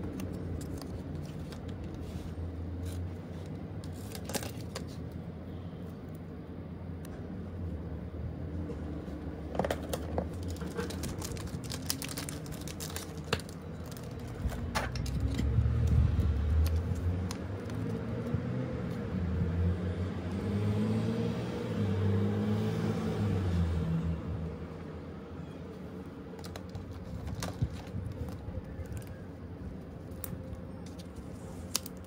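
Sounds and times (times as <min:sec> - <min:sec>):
plastic packaging crinkling: 0:00.0 - 0:02.0, 0:03.8 - 0:05.1, 0:09.9 - 0:15.4, 0:26.4 - 0:29.3.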